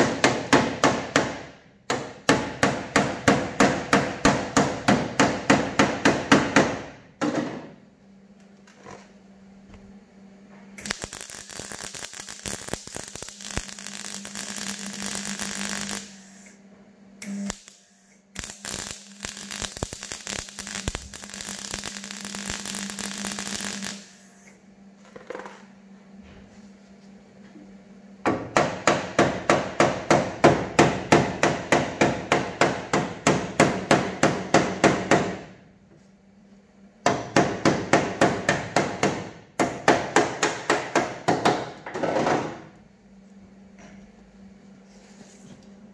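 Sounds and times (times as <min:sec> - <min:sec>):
steady hum: 0:00.0 - 0:45.9
welding arc crackling: 0:10.8 - 0:16.6, 0:17.2 - 0:24.5.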